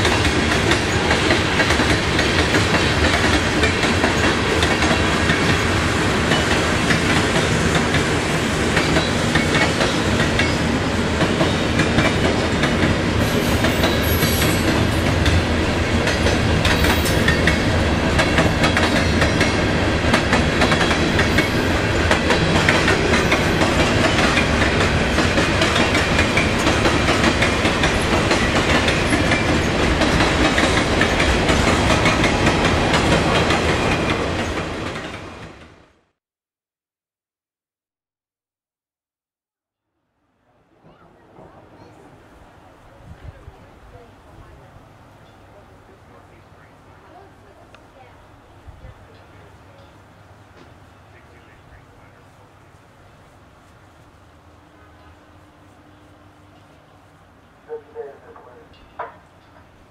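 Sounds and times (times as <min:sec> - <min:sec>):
clickety-clack over rail joints: 0:00.0 - 0:35.8, 0:49.0 - 0:52.4, 0:57.6 - 0:59.9
freight train wheels on rails: 0:00.0 - 0:36.0, 0:40.8 - 0:59.9.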